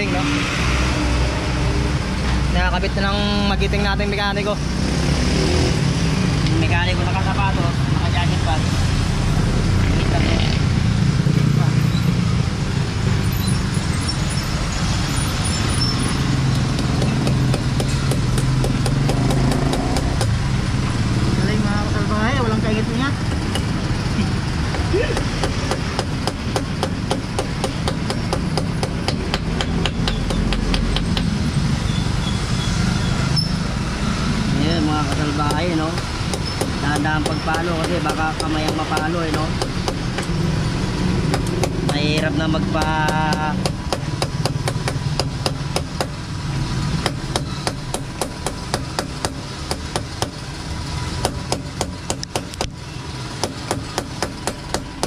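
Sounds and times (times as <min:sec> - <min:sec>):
hammer tapping on metal: 0:16.7 - 0:20.4, 0:23.3 - 0:23.8, 0:24.7 - 0:31.4, 0:35.1 - 0:40.3, 0:41.3 - 0:42.0, 0:42.8 - 0:46.2, 0:53.4 - 0:55.0.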